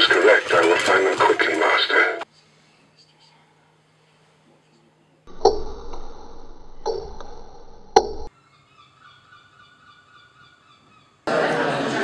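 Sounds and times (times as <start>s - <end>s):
table tennis ball clicking: 5.3s - 8.3s
thin steady tones: 5.3s - 8.3s.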